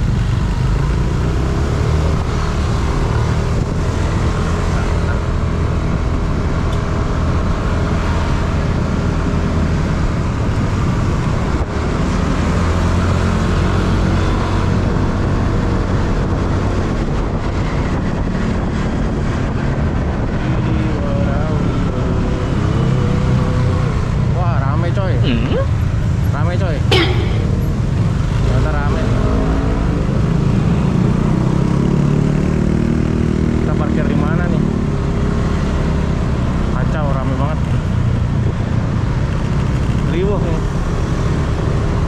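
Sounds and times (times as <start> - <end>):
road and wind noise: 0.0 - 42.0
surrounding cars: 0.0 - 42.0.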